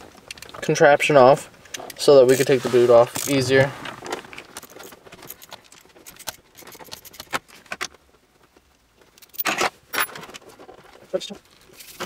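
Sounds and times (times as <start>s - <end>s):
metal parts clicking and rattling: 1.6s - 3.5s, 4.3s - 8.0s, 9.0s - 10.9s
scraping rustle: 2.2s - 6.0s.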